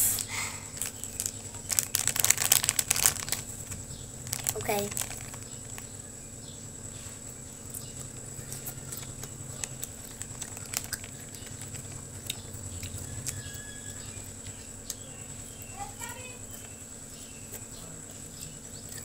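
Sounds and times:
plastic snack packet crackling: 0.0s - 5.9s, 9.0s - 12.4s
steady low hum: 0.0s - 19.0s.

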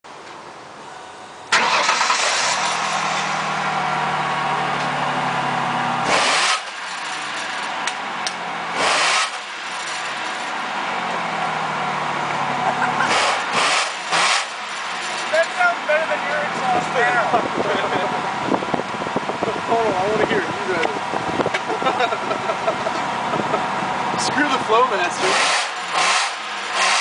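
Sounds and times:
engine starting and idling: 1.5s - 3.4s
engine revving: 1.5s - 27.0s.

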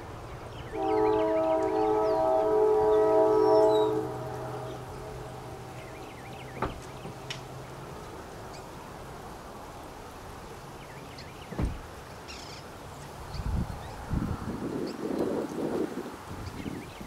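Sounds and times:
small birds chirping: 0.3s - 8.8s, 10.5s - 14.0s.

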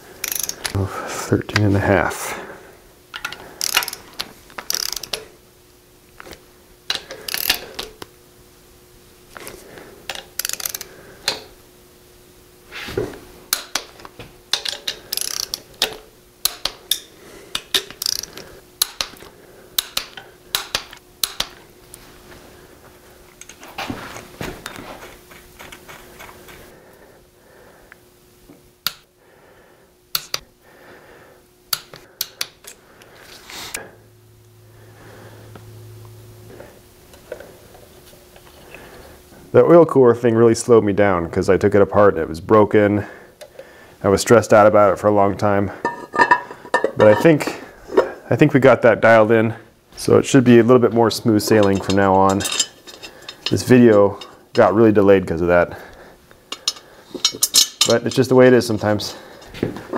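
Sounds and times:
socket ratchet clicking: 0.2s - 0.8s, 3.2s - 5.3s, 6.9s - 8.0s, 10.1s - 11.5s, 13.5s - 21.6s.

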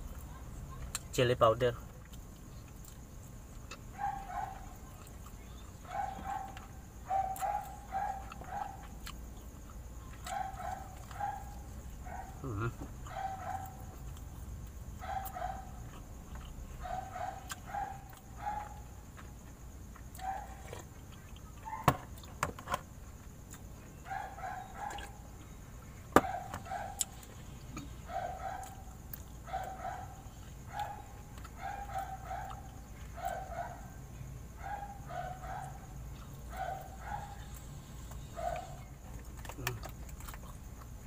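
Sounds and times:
dog barking: 3.9s - 5.0s, 5.8s - 9.2s, 10.1s - 14.0s, 15.0s - 16.0s, 16.8s - 19.0s, 20.2s - 20.9s, 21.6s - 22.1s, 24.0s - 25.4s, 26.2s - 27.3s, 28.0s - 39.0s.

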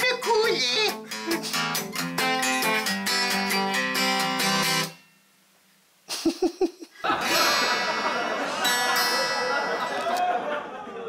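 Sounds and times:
acoustic guitar picking and strumming: 0.0s - 5.2s, 7.3s - 10.2s.

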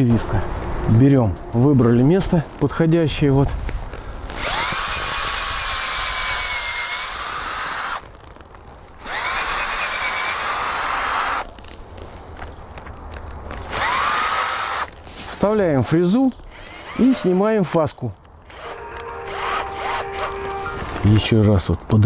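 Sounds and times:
cordless drill whining: 4.2s - 8.0s, 9.0s - 11.5s, 13.7s - 14.9s, 16.4s - 17.5s, 18.4s - 20.4s.

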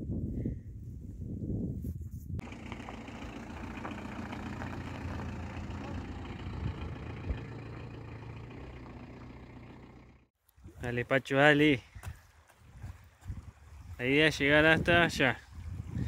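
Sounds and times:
road noise: 2.4s - 10.3s
van engine drone: 2.4s - 10.3s.

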